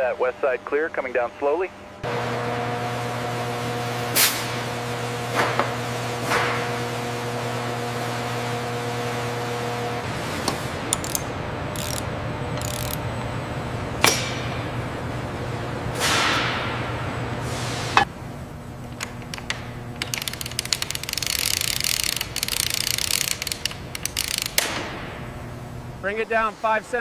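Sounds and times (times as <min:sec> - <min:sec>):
machinery hum: 0:00.0 - 0:27.0
ratcheting rattle: 0:10.9 - 0:12.0, 0:12.6 - 0:13.0, 0:20.0 - 0:24.7.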